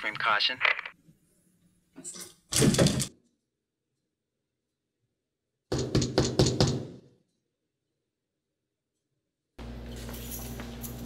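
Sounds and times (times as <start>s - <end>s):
knocking on door: 5.7s - 7.0s.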